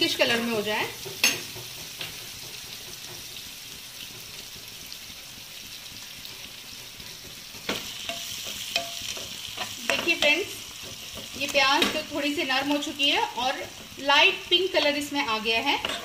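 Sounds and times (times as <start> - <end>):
onions sizzling in hot oil: 0.0 - 16.0
metal spoon clicking on pan: 7.7 - 10.3.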